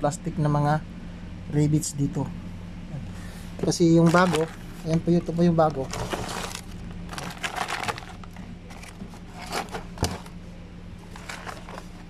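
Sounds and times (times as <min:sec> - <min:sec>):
plastic wrapping crinkling: 0:04.0 - 0:10.3, 0:11.1 - 0:12.0.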